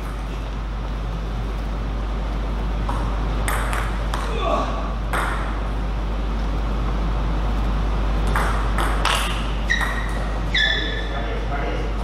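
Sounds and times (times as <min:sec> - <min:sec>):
short high squeaks: 0:09.6 - 0:11.2.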